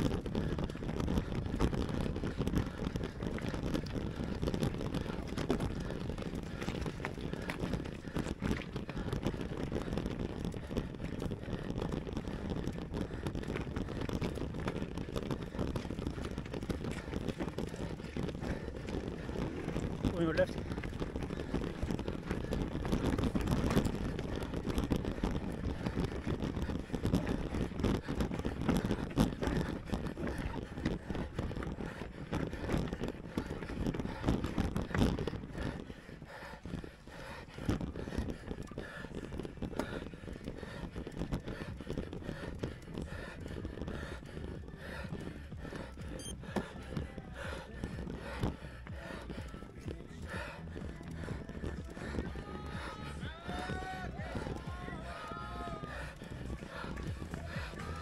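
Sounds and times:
bike knocks and rattles: 0.0 - 36.9
tyres rumbling on rocks: 0.0 - 58.0
wind on microphone: 0.0 - 58.0.

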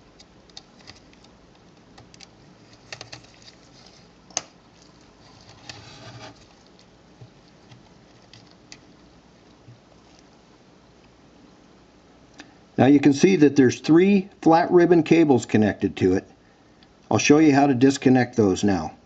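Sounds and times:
handling rustle: 0.0 - 11.2.

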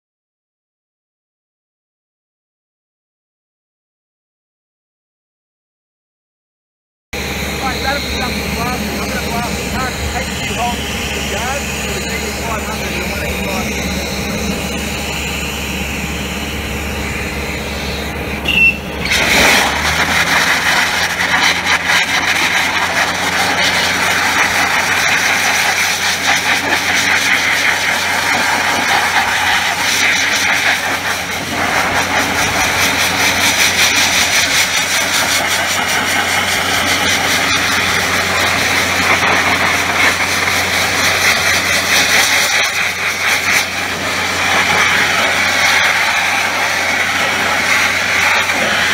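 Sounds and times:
blaster nozzle hissing: 7.2 - 48.9
low machine hum: 7.2 - 48.9.

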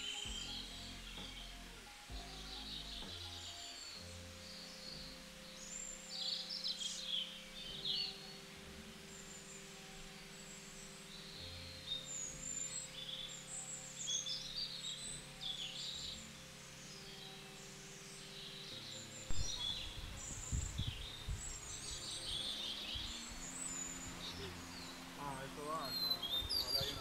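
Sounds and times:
songbirds chirping and singing: 0.0 - 27.0
low muffled thumps: 19.3 - 21.7.

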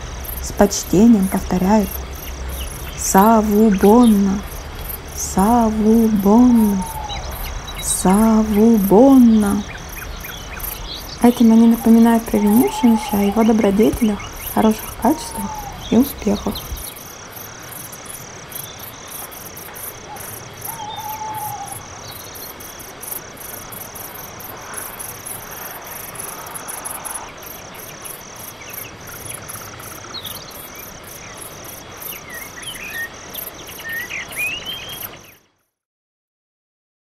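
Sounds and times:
crickets chirping: 0.0 - 35.6
short rising bird calls: 6.8 - 7.9, 11.8 - 16.9, 20.7 - 21.8.

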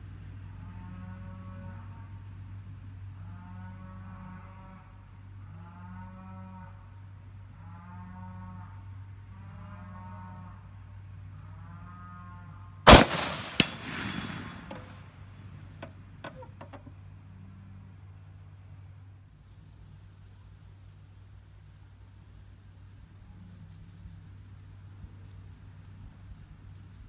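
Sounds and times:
steady low hum: 0.0 - 27.0
sharp metallic clicks: 12.9 - 15.0
smaller second crack: 12.9 - 15.0
rifle shot with echo: 12.9 - 15.1.

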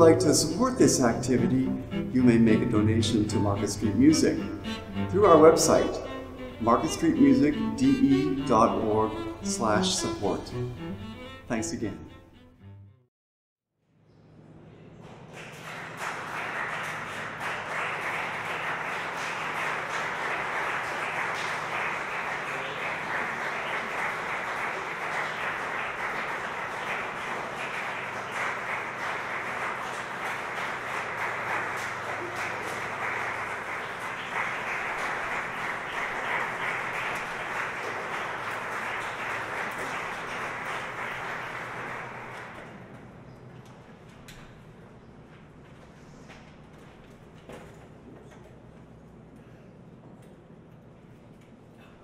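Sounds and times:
audience applauding: 0.0 - 10.3, 15.0 - 43.0.

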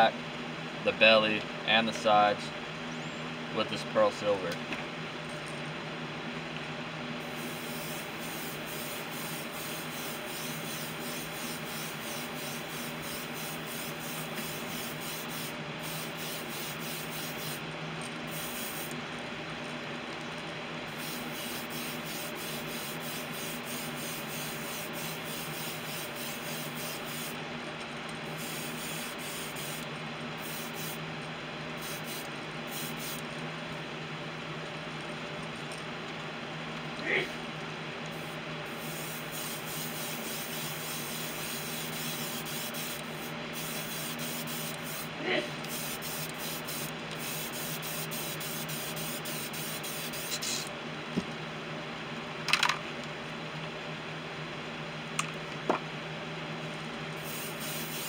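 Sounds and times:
airbrush air hiss: 7.2 - 17.6, 18.3 - 19.0, 20.9 - 27.4, 28.3 - 31.0, 31.8 - 33.2, 38.2 - 50.7, 57.2 - 58.0.

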